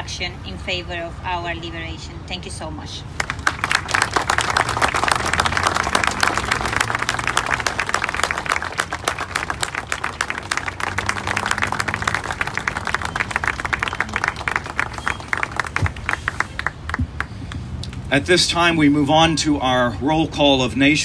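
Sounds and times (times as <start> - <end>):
audience applauding: 3.2 - 17.6.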